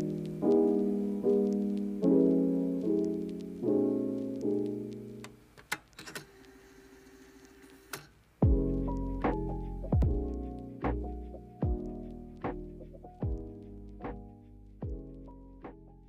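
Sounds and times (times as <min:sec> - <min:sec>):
piano chords: 0:00.0 - 0:05.4, 0:08.4 - 0:16.0.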